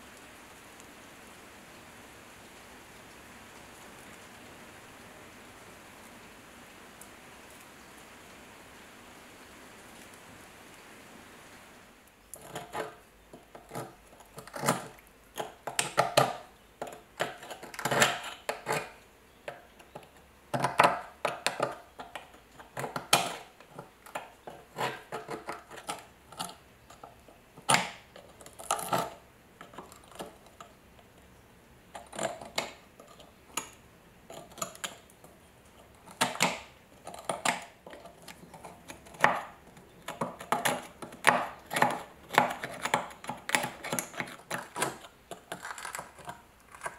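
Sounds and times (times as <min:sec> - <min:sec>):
rust crust cracking clicks: 0:12.3 - 0:31.2, 0:31.9 - 0:46.9.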